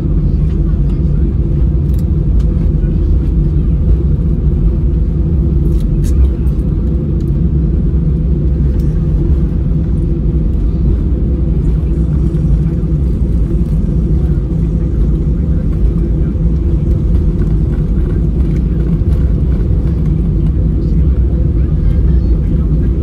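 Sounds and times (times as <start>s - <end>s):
airliner cabin rumble: 0.0s - 23.0s.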